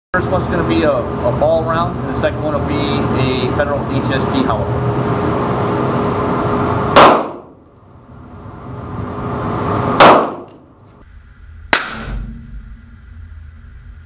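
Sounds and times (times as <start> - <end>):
pistol shots: 6.9 - 7.6, 10.0 - 10.6
sharper quieter crack: 7.0 - 7.5, 10.0 - 10.6.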